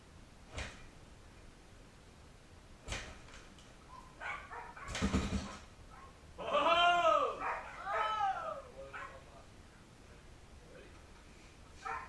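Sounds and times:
engine clatter of knocks: 4.9 - 5.7
kickstarter thumps: 4.9 - 5.7.

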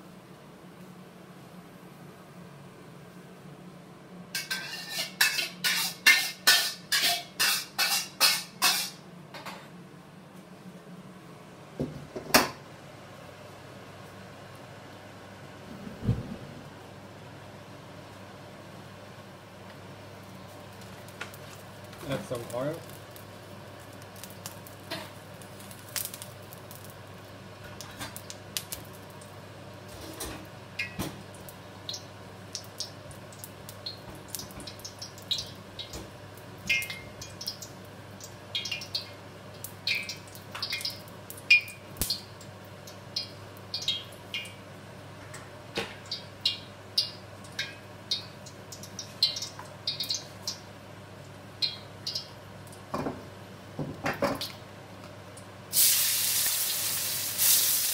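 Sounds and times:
oil crackling and spitting in wok: 4.4 - 9.0, 20.5 - 44.6, 55.7 - 57.9.

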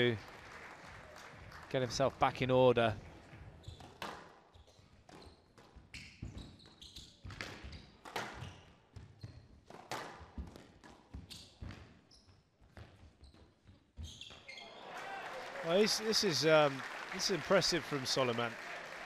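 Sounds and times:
shoes squeaking on court floor: 3.4 - 14.8.

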